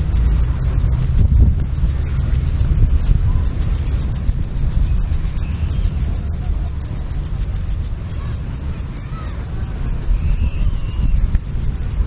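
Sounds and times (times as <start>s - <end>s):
low rumble: 0.0s - 8.2s
insect calling in rapid pulses: 0.0s - 12.0s.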